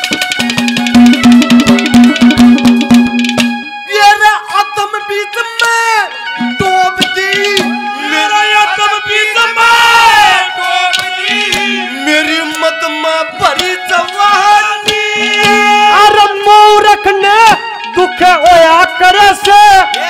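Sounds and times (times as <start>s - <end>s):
hand drums beating: 0.0s - 3.7s, 7.0s - 7.9s, 14.8s - 16.2s
wavering folk melody: 0.0s - 20.0s.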